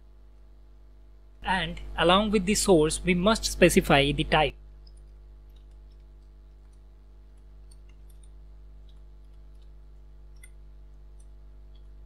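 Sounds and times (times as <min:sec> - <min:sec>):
keyboard keys typing: 0:04.8 - 0:12.0.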